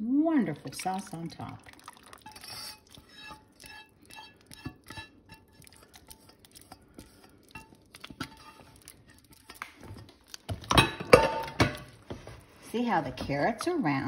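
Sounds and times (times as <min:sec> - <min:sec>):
spatula scraping a saucepan: 0:02.1 - 0:10.1.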